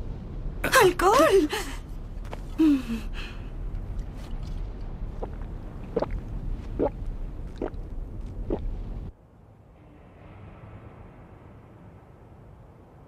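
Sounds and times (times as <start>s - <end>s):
low steady rumble: 0.0s - 13.0s
cartoon gulping: 5.2s - 7.8s, 8.4s - 8.6s.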